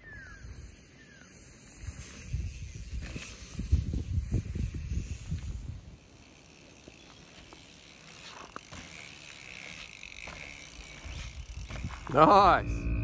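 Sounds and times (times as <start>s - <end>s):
bike tyres rolling over dirt: 0.2s - 12.6s
low rumble: 11.9s - 13.0s.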